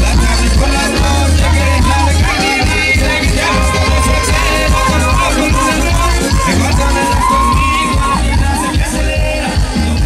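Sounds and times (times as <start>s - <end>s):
live band dance music: 0.0s - 10.0s.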